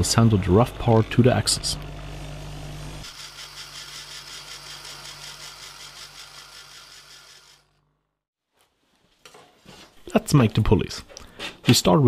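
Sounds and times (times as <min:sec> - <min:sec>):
bench grinder motor hum: 0:00.4 - 0:07.8.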